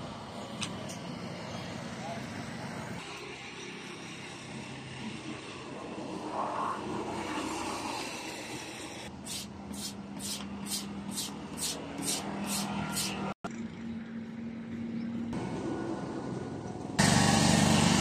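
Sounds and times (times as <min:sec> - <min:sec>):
rasp scraping rubber tube: 0:08.1 - 0:13.3.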